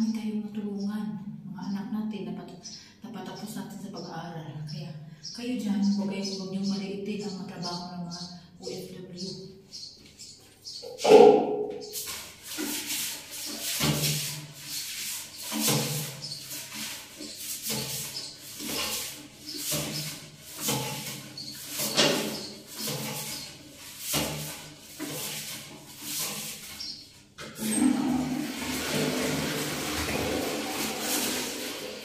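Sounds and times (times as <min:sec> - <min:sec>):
toilet brush scrubbing bowl: 0:08.8 - 0:32.0.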